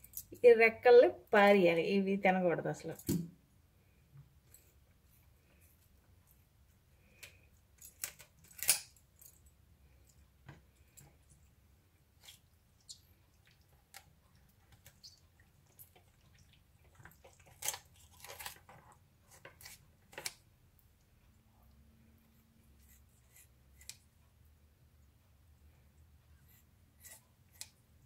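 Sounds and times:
kitchen shears snipping: 22.8 - 24.0, 27.0 - 27.8.

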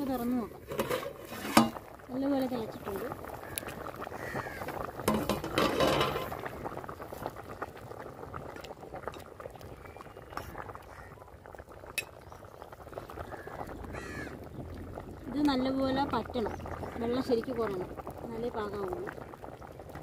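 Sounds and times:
ladle stirring: 0.0 - 2.0, 4.6 - 7.2
curry bubbling in a pot: 0.0 - 20.0
ladle clinking against pot: 5.1 - 6.4.

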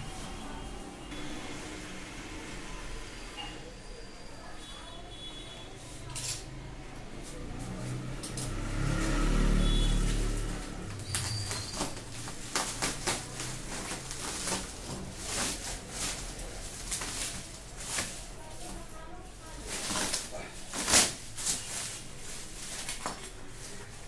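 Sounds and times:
bubble wrap crinkling: 7.2 - 24.0
packing tape ripping off: 9.7 - 18.8, 19.6 - 23.9.

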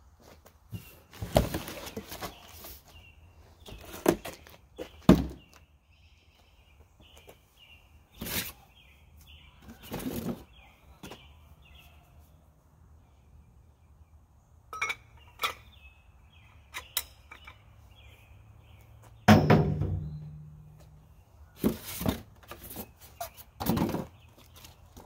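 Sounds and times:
loud ringing thump: 19.3 - 20.6.

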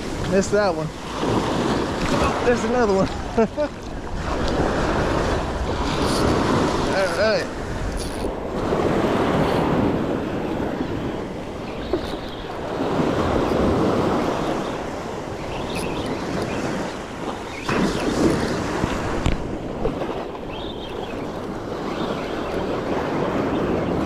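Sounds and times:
surf breaking on sand: 0.0 - 7.9, 16.6 - 20.0
wind buffeting microphone: 0.0 - 24.0.

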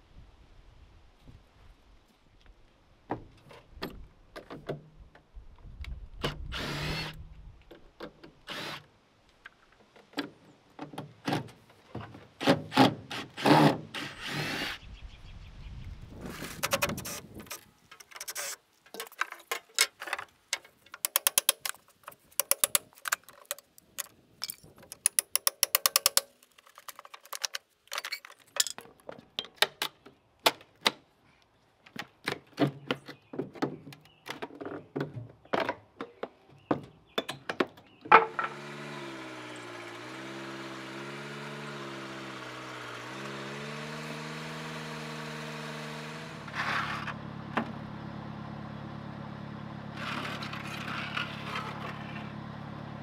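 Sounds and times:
power drill running: 6.5 - 7.2, 8.5 - 8.9, 13.4 - 14.8, 38.3 - 47.1.

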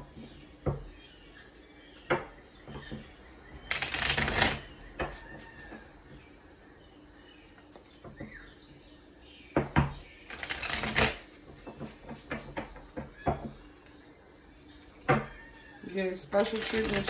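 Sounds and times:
cards clicking: 3.7 - 4.6, 10.3 - 11.2, 16.4 - 17.0
deck of cards shuffling: 3.7 - 4.7, 10.3 - 11.2, 16.4 - 17.0.

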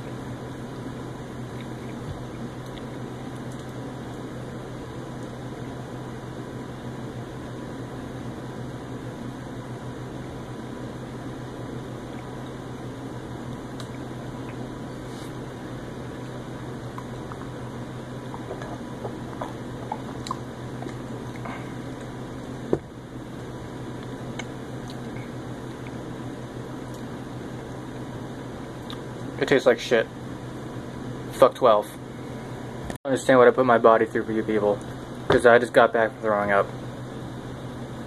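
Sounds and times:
room hum and hiss: 0.0 - 38.0
mouth clicks and gulps: 18.2 - 22.1.

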